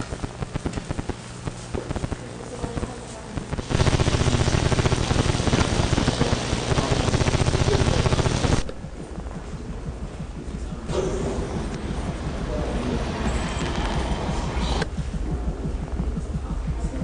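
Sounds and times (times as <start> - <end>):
low hum: 0.0 - 17.0
fast ticking: 3.5 - 10.9.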